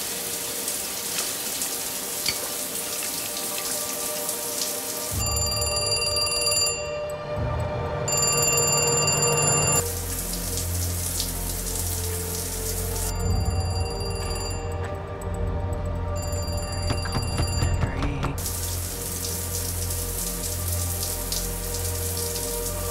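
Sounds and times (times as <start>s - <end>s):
electronic ringing tone: 5.2s - 7.4s, 8.1s - 9.8s, 13.1s - 14.9s, 16.2s - 18.2s.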